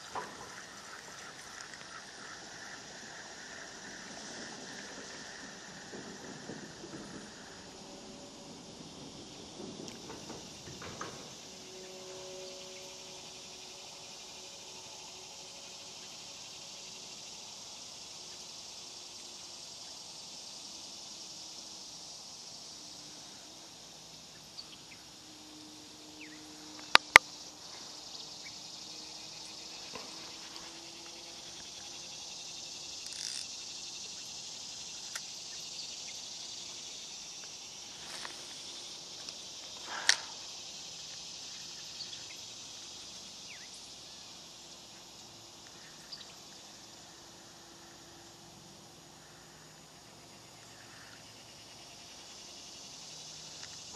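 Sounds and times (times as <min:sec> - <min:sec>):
insects chorus hissing: 0:00.0 - 0:53.9.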